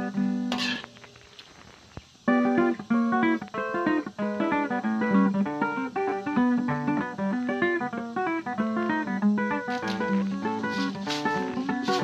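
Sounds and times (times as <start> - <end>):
plucked guitar notes: 0.0 - 0.9, 2.3 - 12.0.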